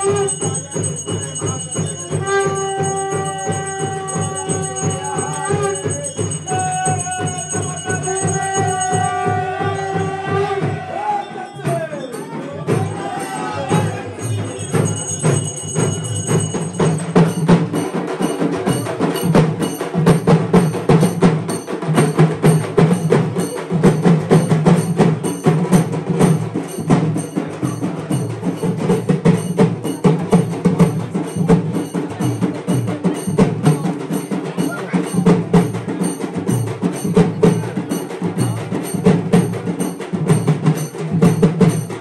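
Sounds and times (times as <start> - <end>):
high ringing tone: 0.0 - 10.4, 11.2 - 17.6
fast percussion strikes: 0.0 - 42.0.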